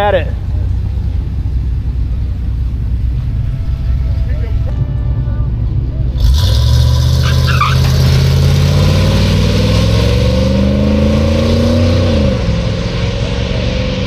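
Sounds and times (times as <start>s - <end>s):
pickup engine revving at full throttle: 6.1s - 14.0s.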